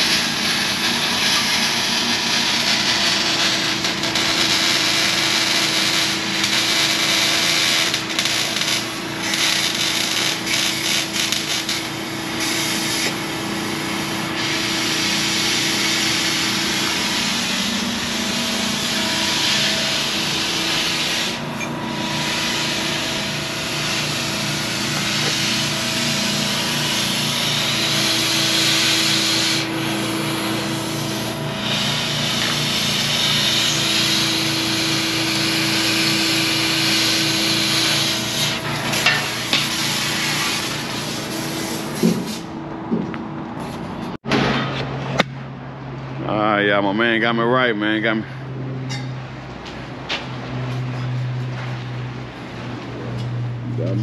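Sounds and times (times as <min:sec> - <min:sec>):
welding crackling hiss: 0:00.0 - 0:21.4, 0:22.0 - 0:42.5.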